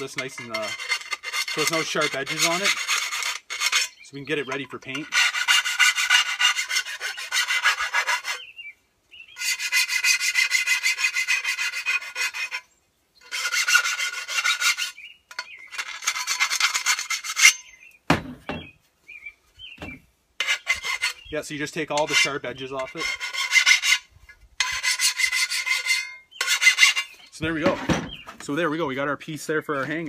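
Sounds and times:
hand file rasping on steel: 0.0 - 8.5, 9.4 - 17.7, 20.4 - 21.2, 22.0 - 27.3
knocks of file set down: 27.6 - 28.4.

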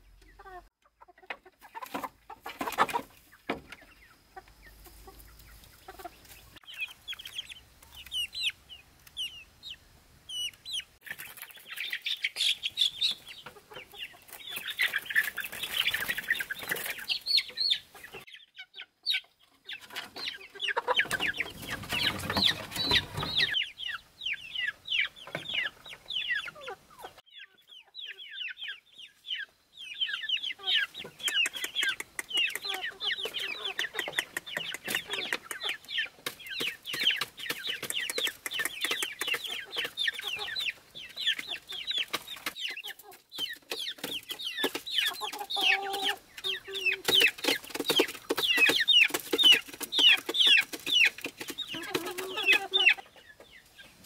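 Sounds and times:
chicks peeping: 0.0 - 54.0
hens clucking: 0.0 - 54.0.

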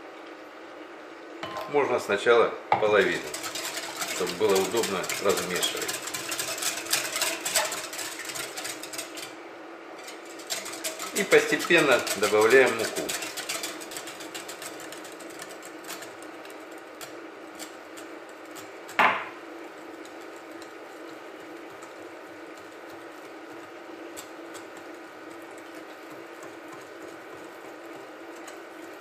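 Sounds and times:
whisk beating batter in glass bowl: 2.8 - 29.0
mug knocking on stone counter: 19.0 - 19.3.

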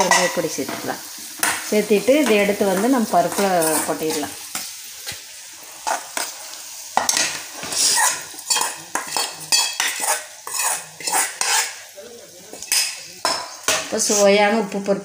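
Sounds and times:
hot oil sizzling: 0.0 - 15.0
spoon scraping a steel pan: 7.0 - 11.8.

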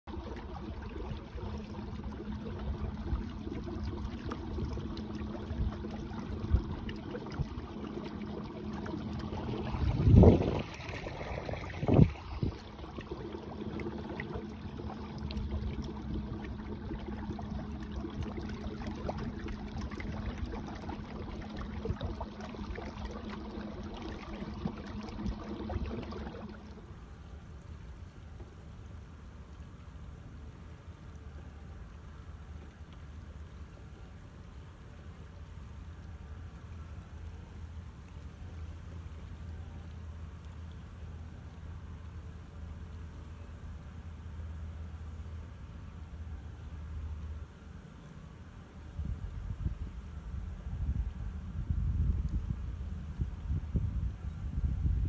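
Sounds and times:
water and wind hiss: 0.1 - 55.0.

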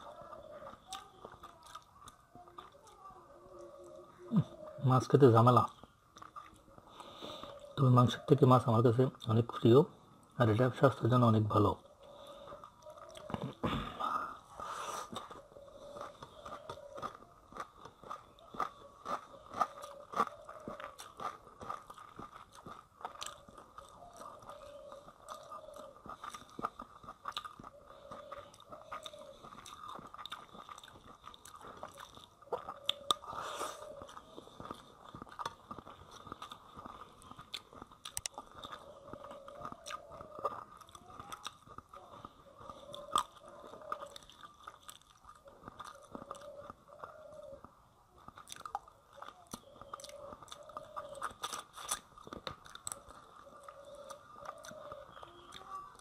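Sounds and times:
small crunches: 0.0 - 4.4, 5.2 - 7.7, 12.1 - 56.0
person chewing food: 0.0 - 4.6, 5.7 - 7.8, 11.8 - 56.0
wet mouth sounds: 12.6 - 56.0.

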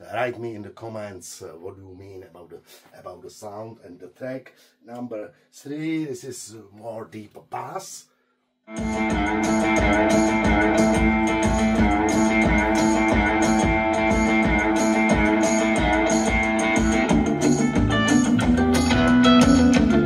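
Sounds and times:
guitar music through speaker: 8.7 - 20.0
deep bass notes: 8.8 - 20.0.

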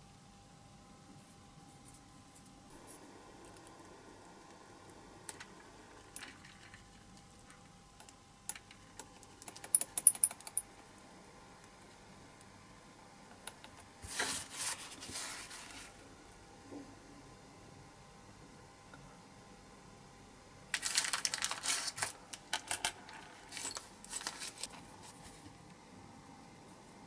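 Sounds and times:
paper towel rustling: 14.0 - 16.0.

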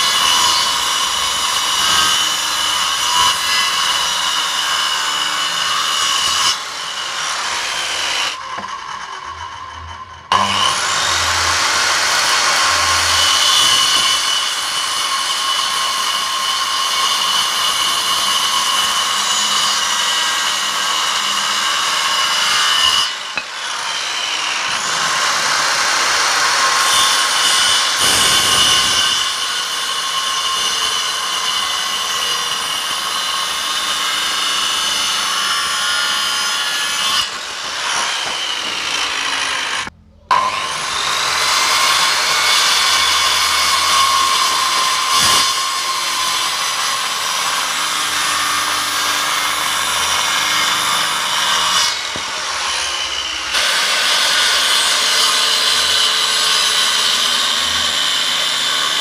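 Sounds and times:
circular saw cutting wood: 0.0 - 59.0.

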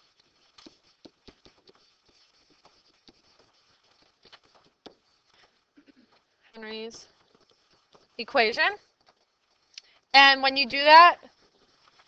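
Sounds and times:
pen tapping on whiteboard: 0.3 - 5.5.

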